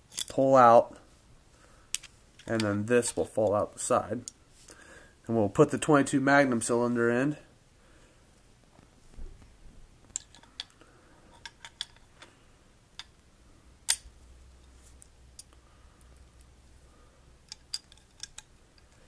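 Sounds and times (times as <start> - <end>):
revolver cylinder metallic clicks: 17.5 - 19.0.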